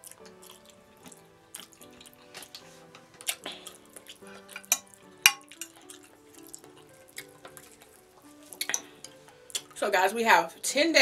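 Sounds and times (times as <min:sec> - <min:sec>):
soft background music: 0:00.0 - 0:11.0
cutlery scraping on a plate: 0:04.4 - 0:05.9.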